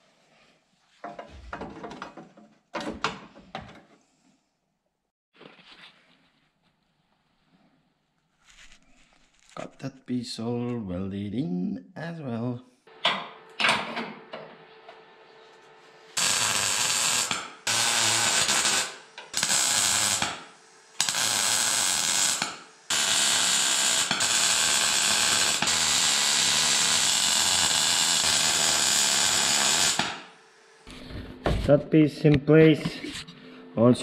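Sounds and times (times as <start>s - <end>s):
welder arc crackling: 16.2s - 30.9s.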